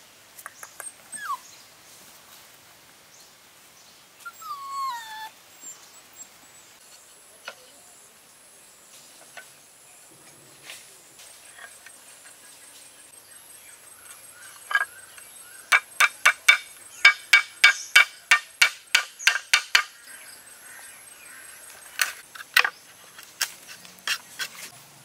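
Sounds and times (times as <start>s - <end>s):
sharp knocks on bamboo: 15.7s - 20.0s.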